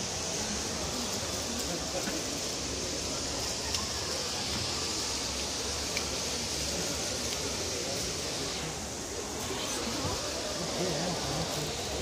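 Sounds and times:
steady rushing hiss: 0.0s - 12.0s
faint ticks: 5.8s - 6.2s.

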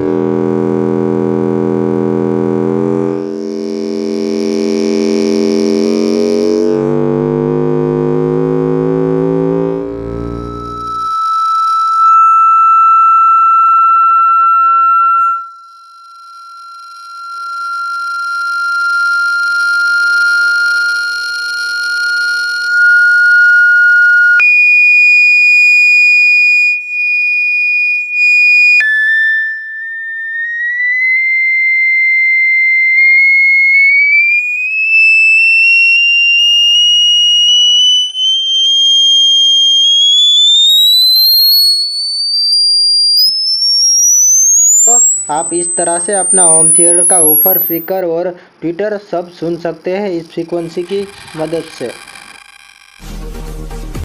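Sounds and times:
buzzy low hum tone: 0.0s - 11.2s, 44.3s - 48.1s, 49.1s - 53.3s
rising high pure tone: 0.0s - 48.1s, 49.1s - 53.3s.

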